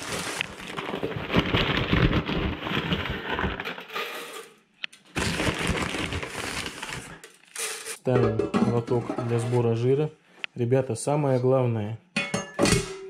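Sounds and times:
paper bag rustling: 0.0 - 4.1, 5.1 - 8.0.

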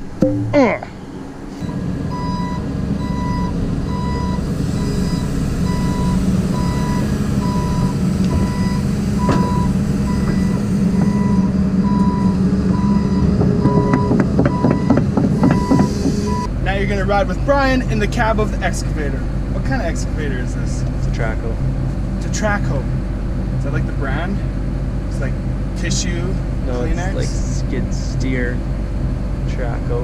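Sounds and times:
backup alarm beeping: 0.0 - 0.8, 1.6 - 16.5
diesel engine running: 0.0 - 30.0.

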